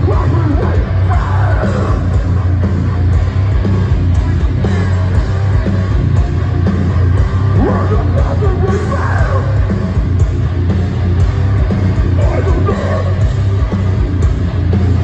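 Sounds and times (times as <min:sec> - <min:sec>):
harsh yelled vocal: 0:00.0 - 0:02.6, 0:07.3 - 0:10.1, 0:11.9 - 0:13.6
live heavy metal band: 0:00.0 - 0:15.0.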